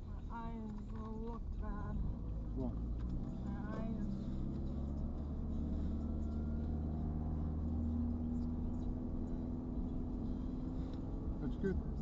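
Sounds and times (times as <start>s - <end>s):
low car engine hum: 0.0s - 12.0s
tyre and road noise: 0.0s - 12.0s.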